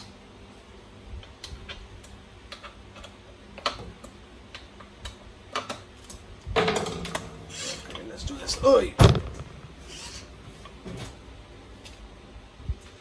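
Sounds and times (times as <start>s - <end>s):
clicks and taps of handling parts: 1.2s - 6.2s.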